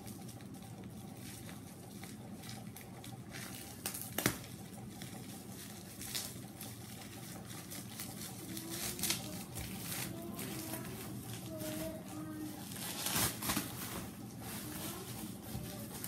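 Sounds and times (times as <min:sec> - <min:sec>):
bubble wrap crinkling: 0:00.0 - 0:16.0
bubble wrap snap: 0:03.8 - 0:04.5, 0:12.7 - 0:13.9.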